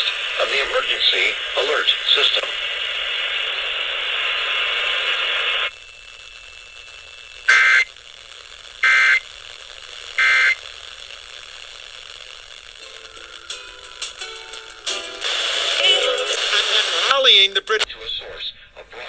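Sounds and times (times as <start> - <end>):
radio static hiss: 0.0 - 19.0
two-tone digital squawks: 7.5 - 7.9, 8.8 - 9.2, 10.2 - 10.6.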